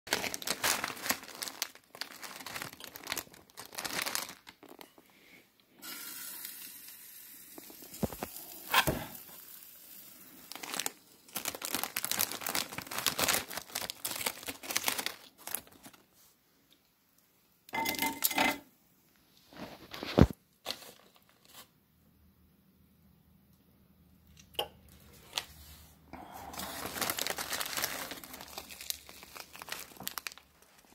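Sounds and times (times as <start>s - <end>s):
plastic wrapper crinkling and tearing: 0.1s - 5.1s, 7.6s - 16.1s, 19.5s - 21.7s, 24.4s - 30.9s.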